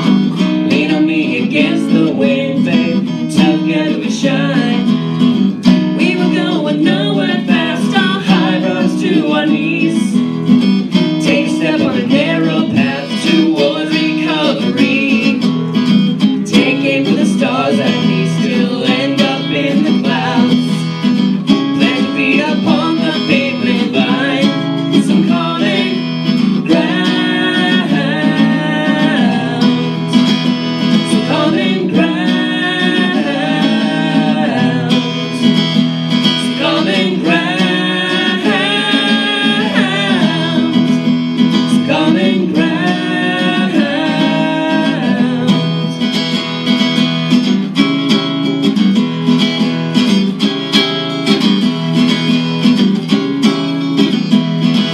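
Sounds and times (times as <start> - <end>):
acoustic guitar: 0.0 - 54.9
woman singing: 0.6 - 5.1, 5.9 - 10.4, 11.0 - 15.5, 16.4 - 21.0, 21.7 - 30.3, 31.0 - 35.6, 36.3 - 46.0.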